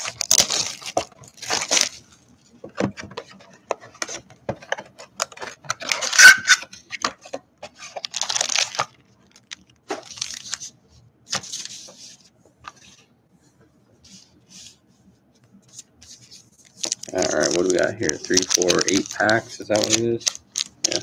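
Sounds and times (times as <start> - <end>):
card wrappers crinkling and tearing: 0.0 - 2.2, 5.2 - 10.7, 16.7 - 21.0.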